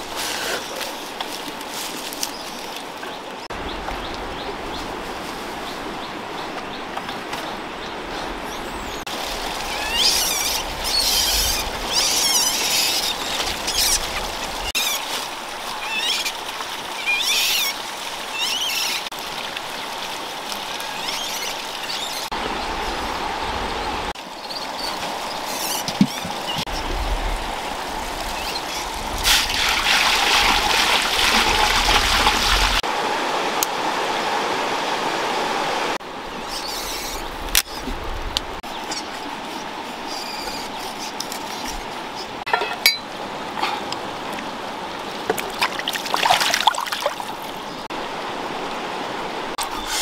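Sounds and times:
river water rushing over rocks: 0:26.2 - 0:36.4, 0:41.8 - 0:49.6
knocks and clinks: 0:42.5 - 0:43.1.

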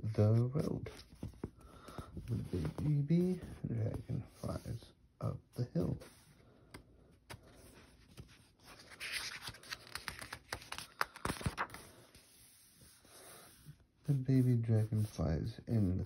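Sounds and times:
book page turning: 0:00.3 - 0:04.3, 0:06.1 - 0:13.6.

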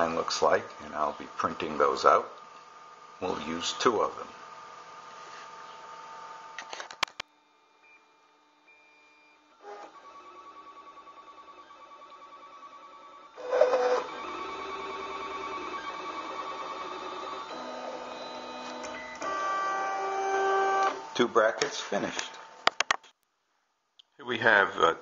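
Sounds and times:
stepper motors whining: 0:09.6 - 0:21.1.

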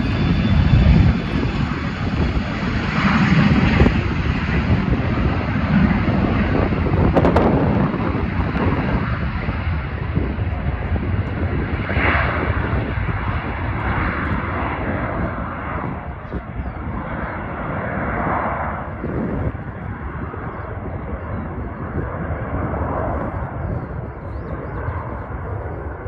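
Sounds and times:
jet engines rumbling: 0:00.0 - 0:26.0.

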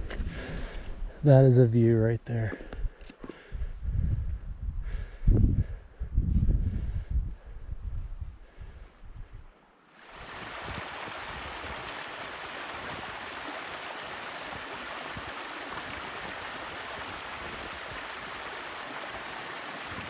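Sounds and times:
rushing water: 0:09.9 - 0:20.0.

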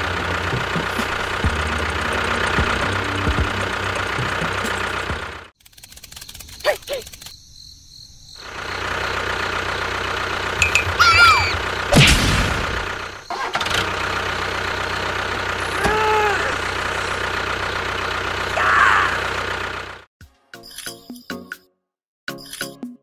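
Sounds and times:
tractor engine running: 0:00.0 - 0:07.3, 0:08.4 - 0:20.1
short pitched calls: 0:10.6 - 0:11.7
loud bump: 0:10.6 - 0:12.9.

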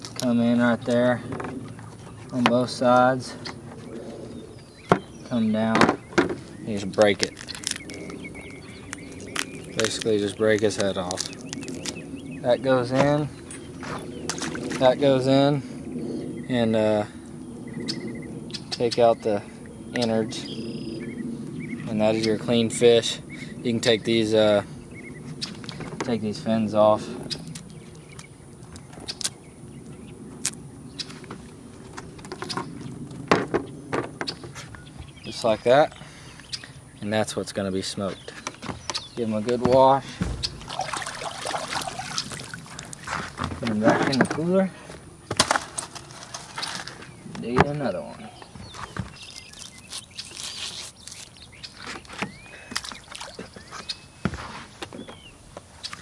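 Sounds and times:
water sloshing: 0:13.8 - 0:15.0, 0:39.4 - 0:44.2, 0:52.8 - 0:53.7.

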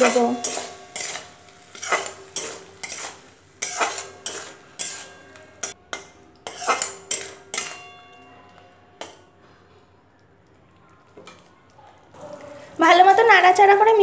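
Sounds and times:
spatula scraping a metal wok: 0:00.0 - 0:08.0.

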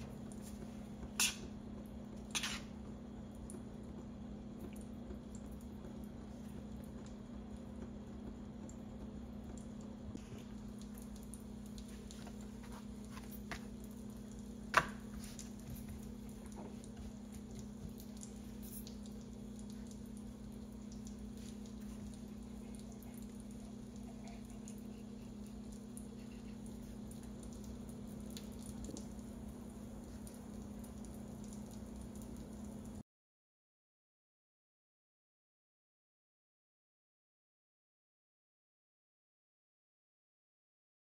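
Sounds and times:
steady low hum: 0:00.0 - 0:33.0
knife slicing dough: 0:02.3 - 0:02.7.

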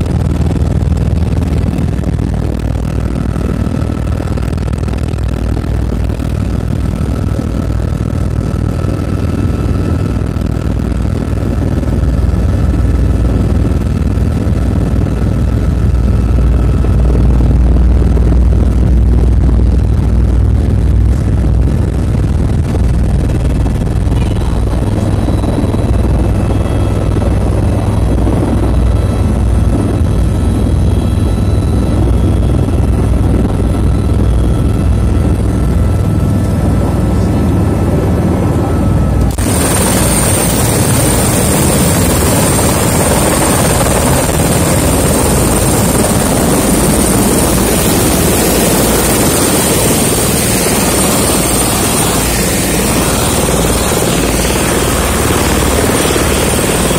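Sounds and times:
helicopter rotor and engine: 0:00.0 - 0:56.9
high whine: 0:13.3 - 0:56.9.

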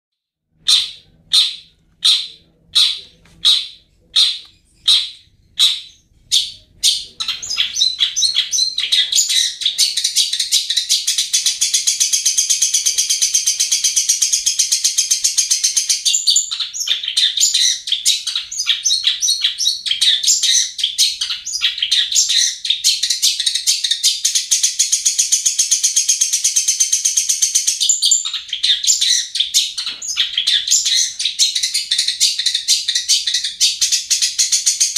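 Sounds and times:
bird calling: 0:00.6 - 0:24.2
bird chattering song: 0:00.6 - 0:34.9.

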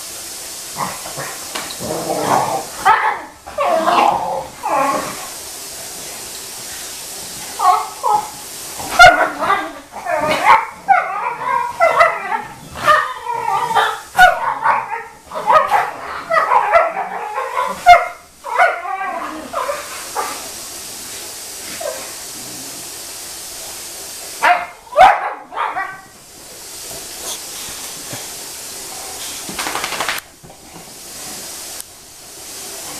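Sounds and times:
steady hiss: 0:00.0 - 0:32.9
dogs yipping barking and whining: 0:02.2 - 0:05.3, 0:07.6 - 0:20.4, 0:24.4 - 0:26.2.

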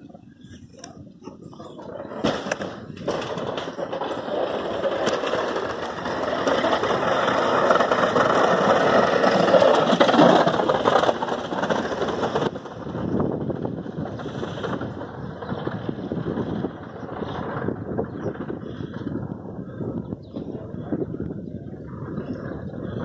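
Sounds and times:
plow blade scraping snow: 0:01.7 - 0:12.5
plow truck driving past: 0:02.8 - 0:17.8.

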